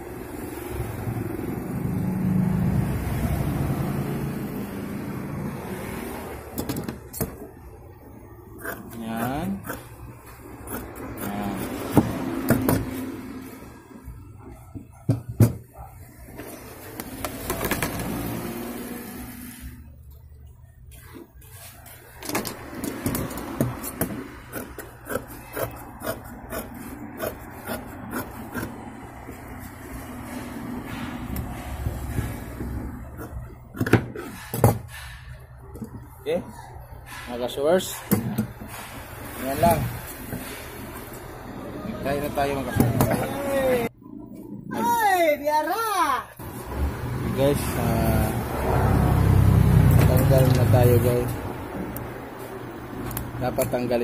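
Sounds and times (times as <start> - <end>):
vehicle engine hum: 0.0 - 8.7, 46.4 - 54.0
scissors cutting fabric: 8.6 - 9.9, 10.6 - 13.1, 22.9 - 28.8.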